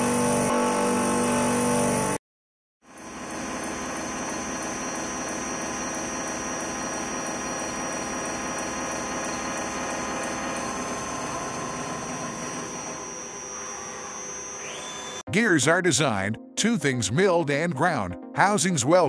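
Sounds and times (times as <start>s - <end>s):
machine whirring: 3.0s - 15.2s.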